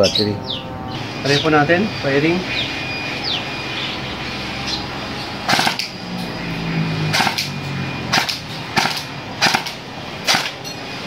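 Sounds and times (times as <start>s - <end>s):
airsoft rifle shots snapping: 5.5s - 6.0s, 7.1s - 7.5s, 8.1s - 10.6s.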